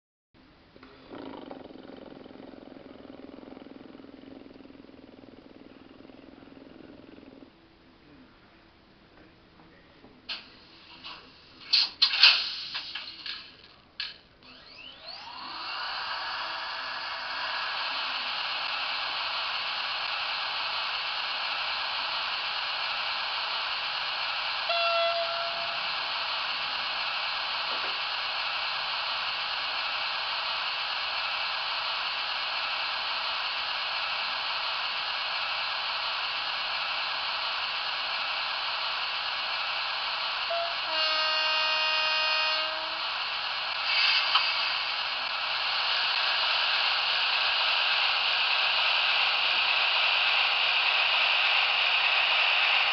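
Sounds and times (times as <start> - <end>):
model locomotive speaker hiss: 10.3 - 52.9
locomotive horn: 24.7 - 25.8, 40.5 - 43.0.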